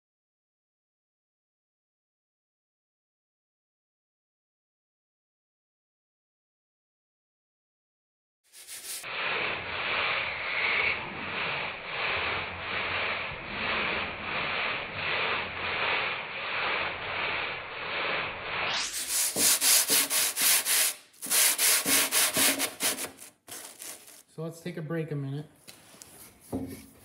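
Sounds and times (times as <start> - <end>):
sandpaper rubbing wet metal: 8.5 - 24.2.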